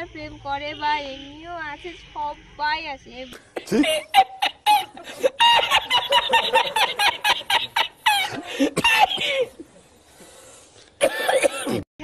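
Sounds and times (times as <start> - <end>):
man laughing uncontrollably: 3.6 - 9.5.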